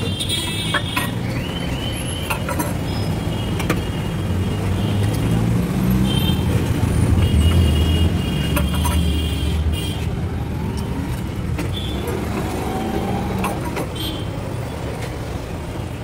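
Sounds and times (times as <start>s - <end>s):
vehicle engine rumbling: 5.0s - 16.0s.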